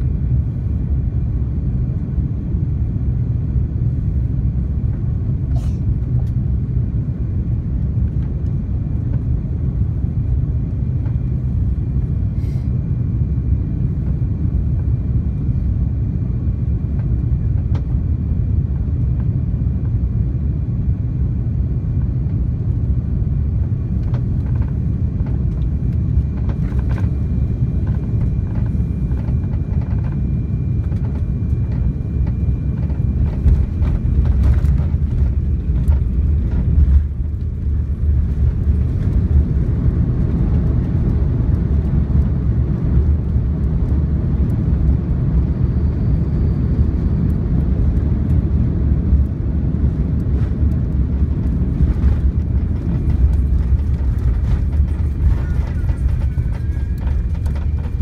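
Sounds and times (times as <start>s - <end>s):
aircraft engines and airflow rumble: 0.0s - 58.0s
heavy rumble rolling on runway: 0.0s - 58.0s
plane touching down: 0.0s - 58.0s
light cabin rattles: 51.8s - 58.0s.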